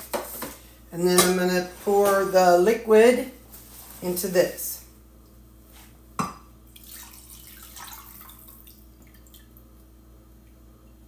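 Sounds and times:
liquid trickling into glass dish: 6.8 - 9.6.

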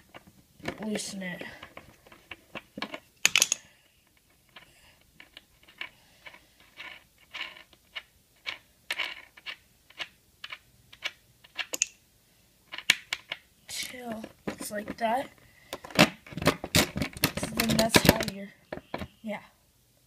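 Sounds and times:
tool clicking and scraping on nut: 1.6 - 12.0.

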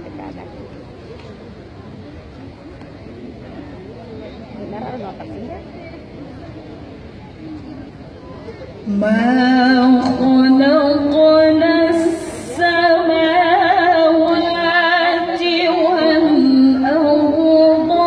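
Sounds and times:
woman reciting melodically: 8.8 - 18.0.

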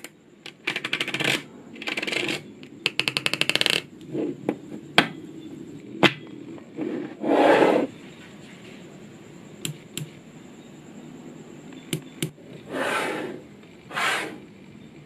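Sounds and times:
magnetic balls clicking: 0.0 - 4.0, 9.6 - 10.2, 11.7 - 12.4.

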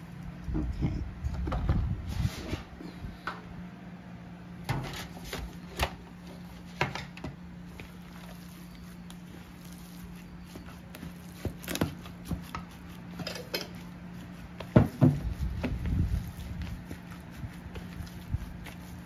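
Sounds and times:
steady low hum: 0.0 - 19.0
hands kneading meat mixture: 4.6 - 19.0.

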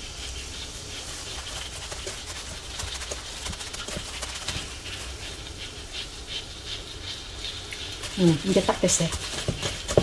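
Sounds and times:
wet squishing of mixture: 0.0 - 10.0
plastic glove crinkling: 0.6 - 5.8, 7.9 - 10.0.

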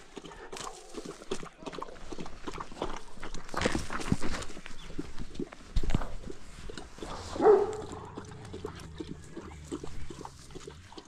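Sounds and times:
dog growling: 7.0 - 10.9.

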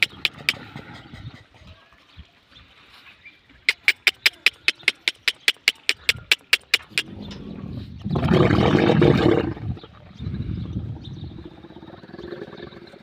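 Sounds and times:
run of sharp clicks: 3.7 - 7.1
camel gurgling roar: 7.0 - 13.0.

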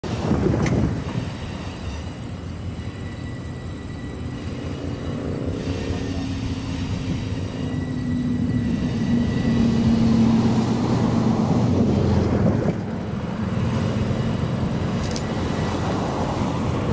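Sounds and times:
locomotive engine drone: 0.0 - 16.9
low hum: 1.1 - 16.9.

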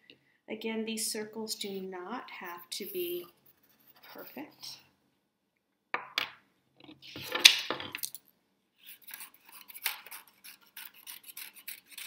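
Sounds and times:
scissors snipping paper: 9.0 - 12.0.

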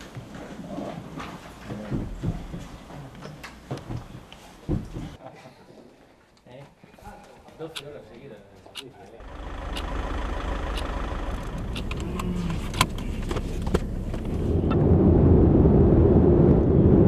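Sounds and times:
car engine and road rumble: 9.2 - 17.0.

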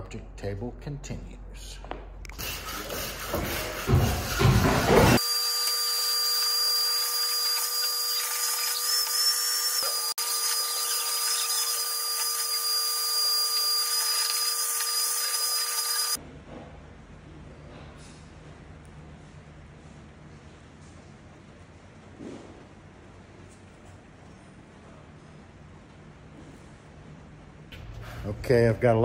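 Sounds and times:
shop vacuum whining: 2.4 - 16.2.

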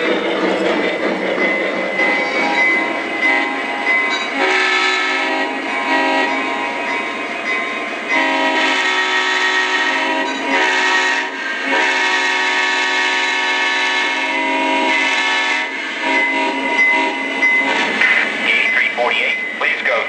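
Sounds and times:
model locomotive horn blasts: 3.2 - 3.7, 4.3 - 6.5, 8.1 - 17.3.

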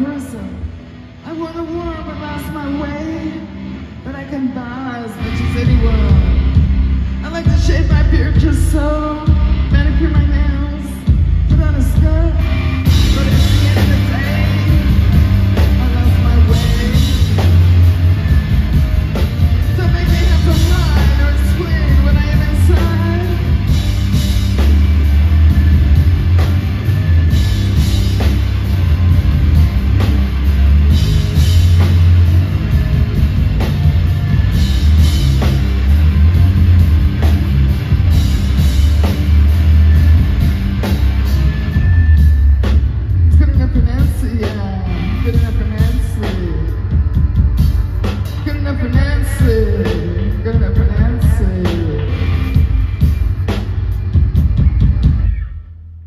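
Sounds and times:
live rock band: 0.0 - 56.0.

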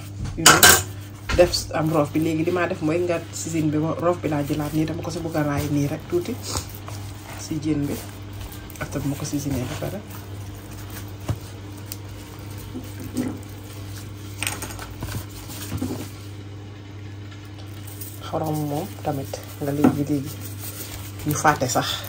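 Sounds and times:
steady low hum: 0.0 - 22.0
person speaking: 0.4 - 11.1, 18.0 - 22.0
wet hands handling fish: 1.0 - 16.4, 17.4 - 22.0.

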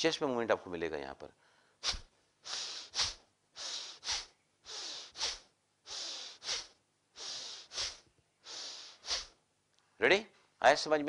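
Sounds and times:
forceful breathing through nose: 1.5 - 9.4.

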